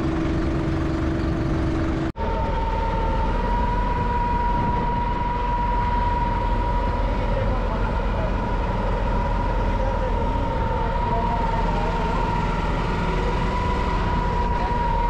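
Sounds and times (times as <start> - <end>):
motorboat engine whine: 0.0 - 15.0
wind noise: 3.2 - 6.8.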